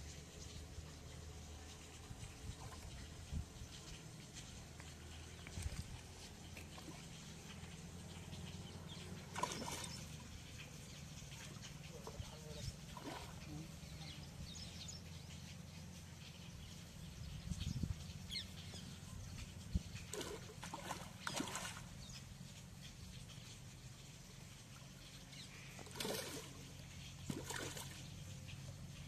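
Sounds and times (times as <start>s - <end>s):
fish splashing and thrashing in water: 9.0s - 12.2s, 12.8s - 13.5s, 20.0s - 22.0s, 25.7s - 28.6s.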